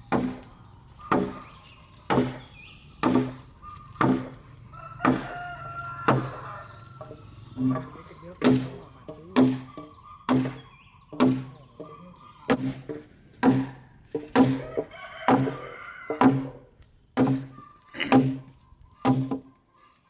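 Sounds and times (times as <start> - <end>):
hammer blows on timber beam: 7.6 - 11.6, 12.5 - 14.6.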